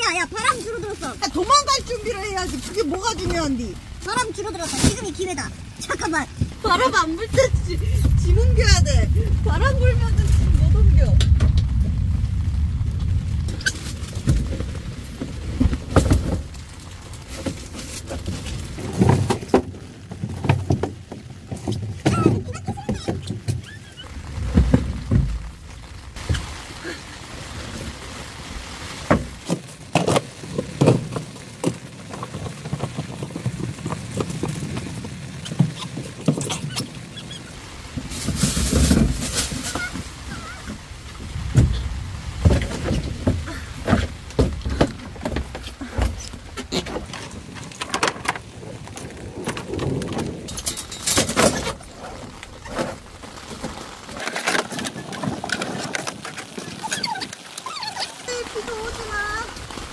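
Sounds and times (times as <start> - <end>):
rain: 0.0 - 59.9
rustling plastic and fabric: 0.0 - 59.9
wind: 0.0 - 59.9
camping gear knocks and clatters: 13.7 - 23.8, 29.0 - 36.9, 37.9 - 56.8.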